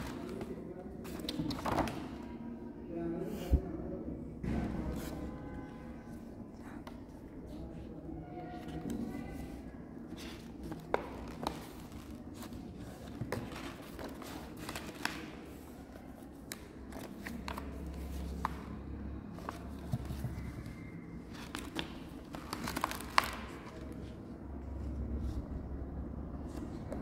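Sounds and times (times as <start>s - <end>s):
paper rustling and crinkling: 8.4s - 18.7s, 19.4s - 24.2s.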